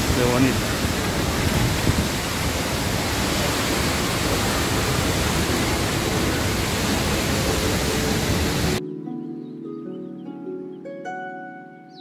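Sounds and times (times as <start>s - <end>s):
waterfall rushing into pool: 0.0s - 8.8s.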